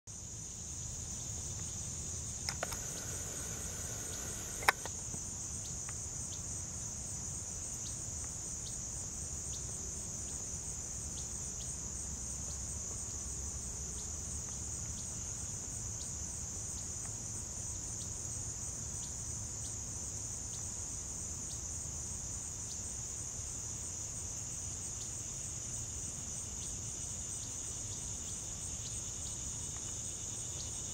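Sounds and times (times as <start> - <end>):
insect chorus: 0.1 - 30.9
faint short ticks: 2.5 - 5.0
sharp click: 2.5 - 5.0.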